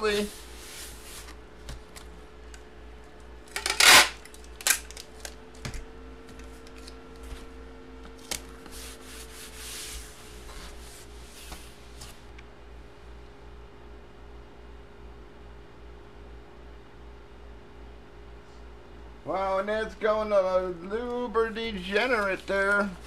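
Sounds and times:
cardboard sheets sliding and rubbing: 0:00.0 - 0:01.4, 0:08.6 - 0:12.3
cardboard rustling: 0:00.0 - 0:02.2, 0:08.1 - 0:12.3.

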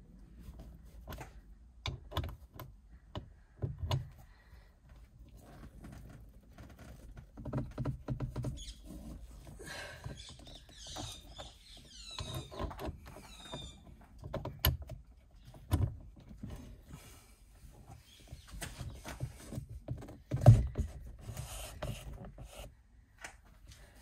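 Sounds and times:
high squeaking: 0:08.4 - 0:09.2.

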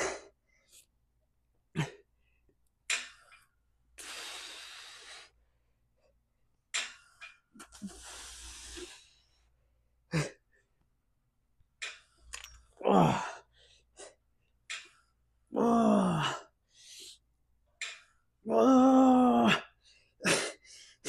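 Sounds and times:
man breathing hard: 0:04.0 - 0:05.5, 0:07.2 - 0:09.5, 0:13.0 - 0:14.2, 0:19.5 - 0:21.0.

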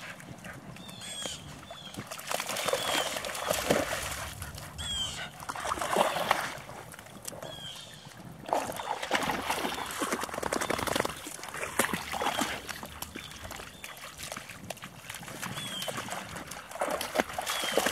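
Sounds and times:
water splashing and sloshing: 0:00.0 - 0:17.9.

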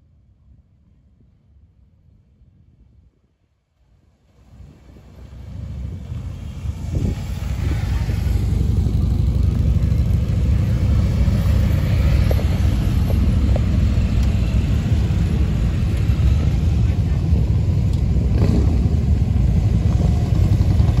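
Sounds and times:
motorcycle engines rumbling: 0:04.3 - 0:21.0.

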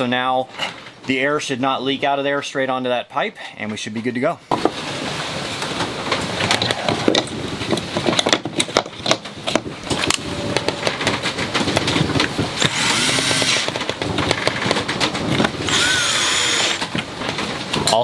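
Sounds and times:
cordless drill driving screws: 0:12.6 - 0:13.8, 0:15.6 - 0:16.9.

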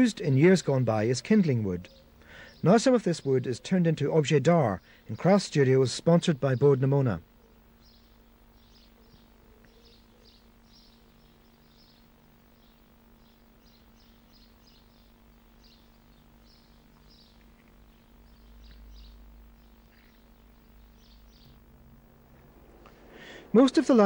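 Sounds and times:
faint birds chirping: 0:00.0 - 0:24.0
steady low hum: 0:00.0 - 0:24.0
low rumble: 0:21.6 - 0:24.0.

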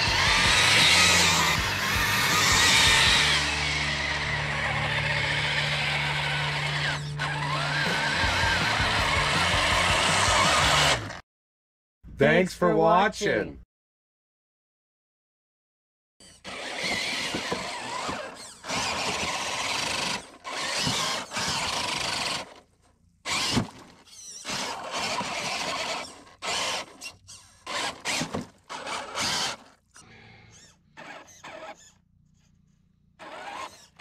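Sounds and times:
electric motor whining: 0:00.0 - 0:11.2, 0:16.2 - 0:22.6, 0:23.3 - 0:32.5, 0:33.1 - 0:34.0.

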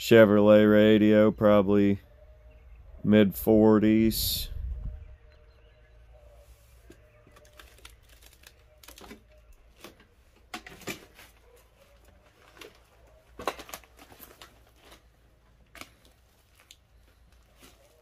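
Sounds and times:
footsteps crunching on straw: 0:16.0 - 0:18.0.

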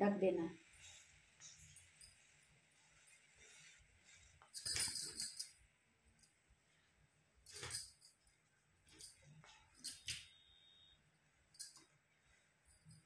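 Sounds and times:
jingling and clinking: 0:04.5 - 0:05.6, 0:07.4 - 0:10.4, 0:11.5 - 0:11.9, 0:12.6 - 0:13.0.

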